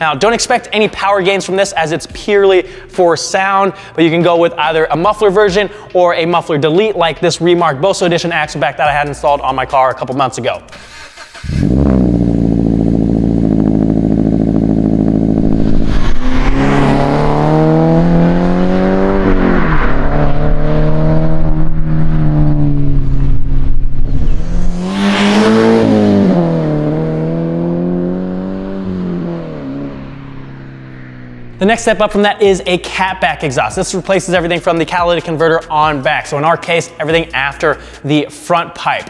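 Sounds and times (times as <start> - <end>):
car engine idling and revving: 10.7 - 32.0.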